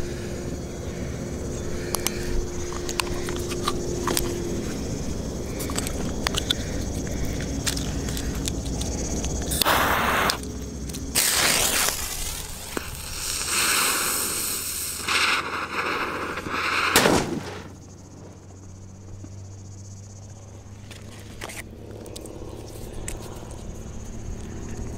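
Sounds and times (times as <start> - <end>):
fuse hissing and sputtering: 0.0 - 19.1
firecracker bang: 11.2 - 17.8.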